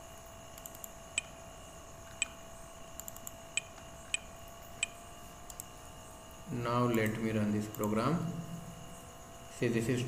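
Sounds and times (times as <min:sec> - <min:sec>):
faint electrical hum: 0:00.0 - 0:10.0
computer mouse clicks: 0:00.5 - 0:01.4, 0:03.0 - 0:05.7, 0:06.9 - 0:08.0.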